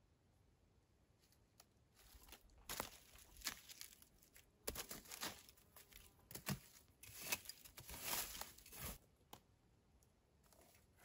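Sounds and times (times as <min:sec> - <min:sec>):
hand scraping dry forest litter: 0:01.2 - 0:09.1.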